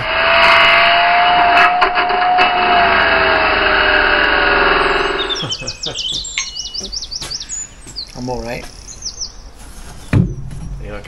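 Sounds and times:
angle grinder cutting brick: 0.0 - 5.5
birds chirping: 2.2 - 11.0.

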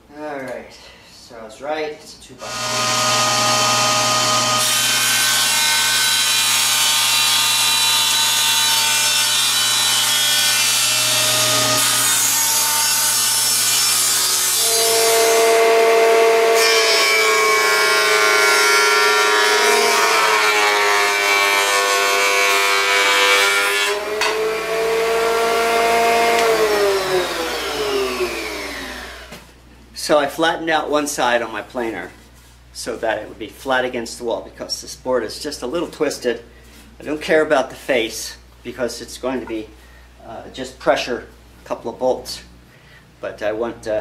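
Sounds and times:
table saw ripping a board: 2.4 - 29.4.

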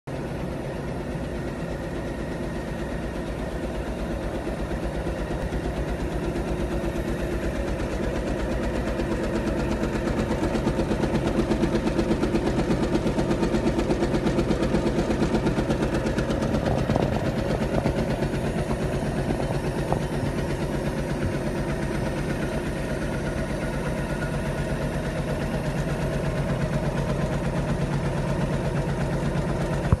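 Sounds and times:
steady mechanical hum: 0.1 - 30.0.

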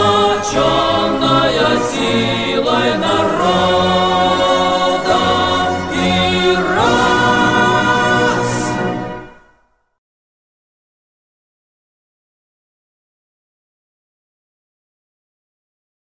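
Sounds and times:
choir singing held chords: 0.0 - 9.7
instrumental accompaniment: 0.0 - 9.7.

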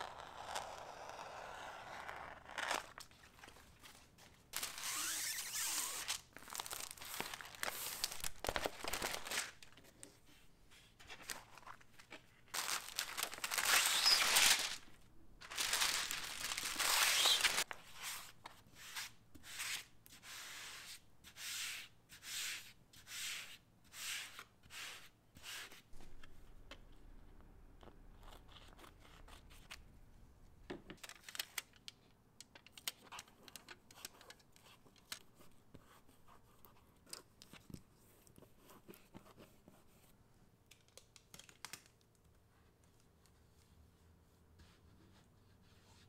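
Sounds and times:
plastic film crinkling: 4.6 - 9.8, 12.5 - 17.7
hands rubbing film: 12.5 - 17.7.

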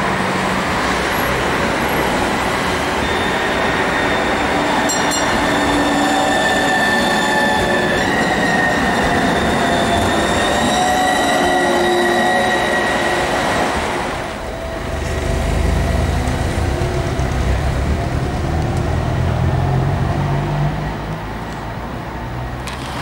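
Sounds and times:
tram passing with high whine: 0.0 - 23.0
road traffic rumble: 14.2 - 23.0.

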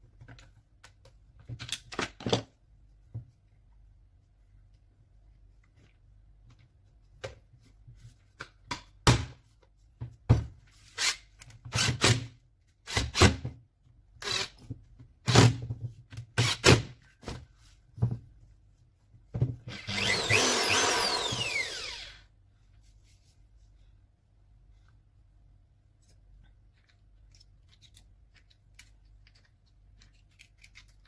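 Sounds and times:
polisher motor whirring down: 19.7 - 22.2.

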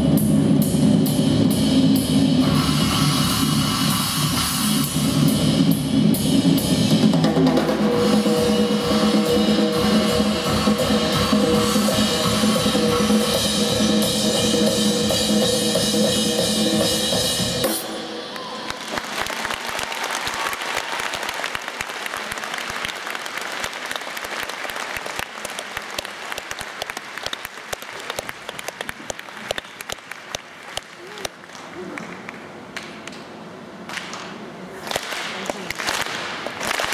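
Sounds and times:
music with drum kit: 0.0 - 18.3
audience applauding: 18.3 - 33.2, 34.8 - 36.9.

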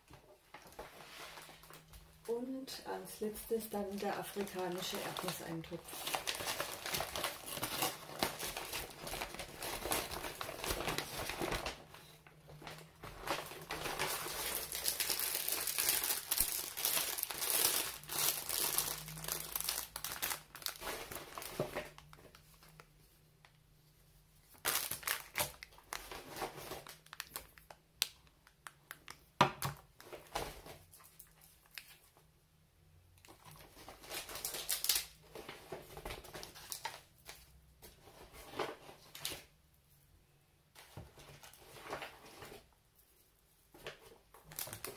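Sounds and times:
paper and plastic packaging crinkling: 3.2 - 22.9, 24.5 - 27.8, 33.2 - 39.5, 40.8 - 42.7, 43.7 - 44.9.

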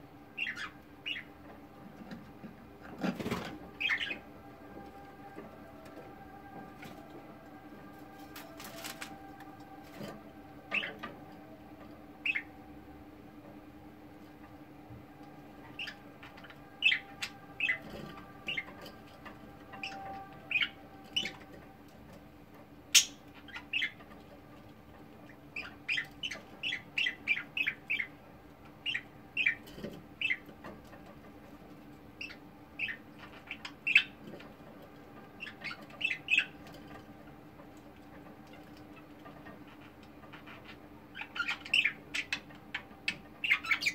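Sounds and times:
faint steady hum: 0.0 - 43.9
budgerigars chirping: 0.4 - 1.3, 3.8 - 4.2, 10.7 - 11.0, 12.2 - 12.5, 15.7 - 18.8, 19.8 - 21.4, 22.9 - 24.0, 25.6 - 28.1, 28.8 - 29.6, 30.2 - 30.4, 32.2 - 34.2, 35.4 - 36.6, 41.1 - 42.5, 43.4 - 43.9.

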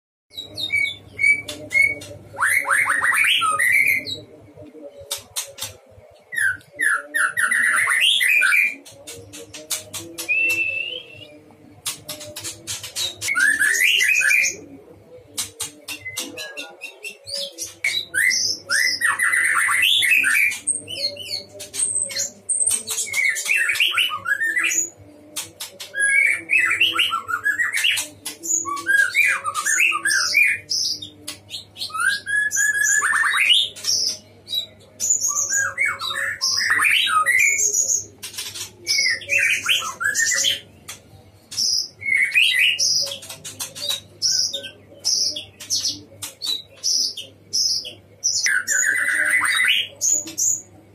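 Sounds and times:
bird singing whistled phrases: 10.2 - 11.4.

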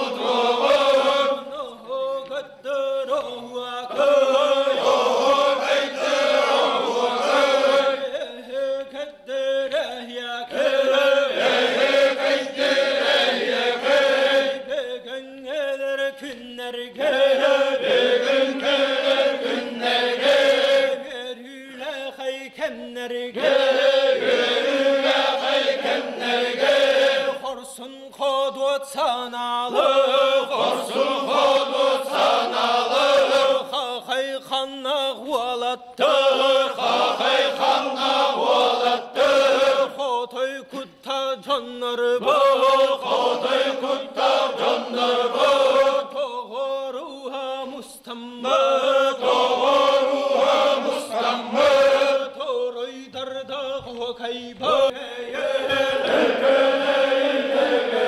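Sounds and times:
men chanting: 0.0 - 2.0, 2.7 - 16.2, 16.8 - 27.8, 28.9 - 58.0.

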